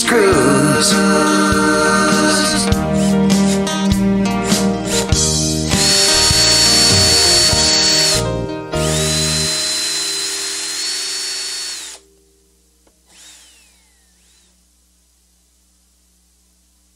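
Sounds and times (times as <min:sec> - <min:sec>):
electric drill whining: 0:02.6 - 0:12.1, 0:12.9 - 0:14.6.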